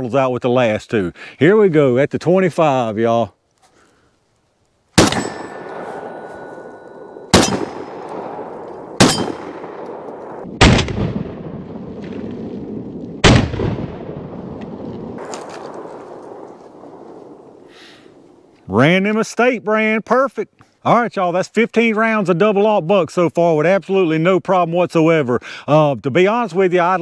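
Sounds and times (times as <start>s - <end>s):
steel target ringing: 5.0s - 10.4s
shotgun shots with echo: 5.0s - 12.4s, 13.2s - 17.7s.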